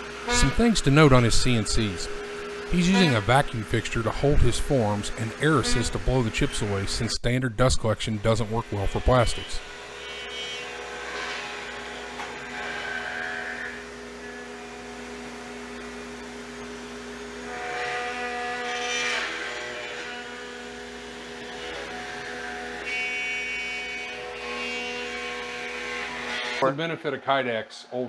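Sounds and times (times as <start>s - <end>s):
cnc router spindle hum: 0.0s - 7.2s, 7.8s - 26.6s
router cutting plastic: 0.3s - 7.1s, 8.2s - 13.8s.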